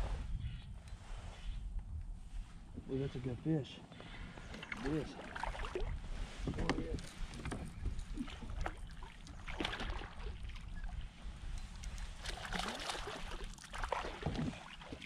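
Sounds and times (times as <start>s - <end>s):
water splashing and sloshing: 4.2s - 15.0s.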